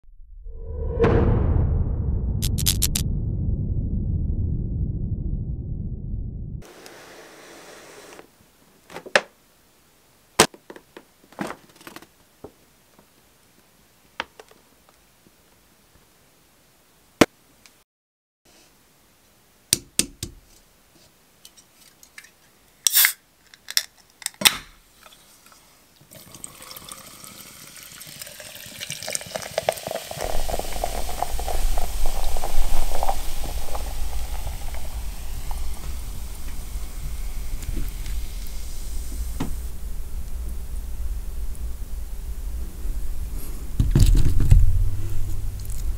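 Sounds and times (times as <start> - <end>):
soda can clicks: 22.9 - 24.7
soda fizzing into tumbler: 25.0 - 39.8
low rumble of filling tumbler: 30.2 - 45.9.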